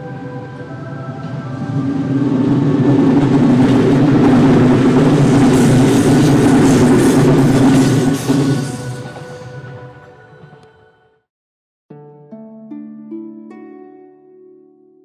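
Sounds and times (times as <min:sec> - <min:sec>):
train passing at speed: 0:00.0 - 0:10.9
wheels clattering on rails: 0:01.3 - 0:09.4.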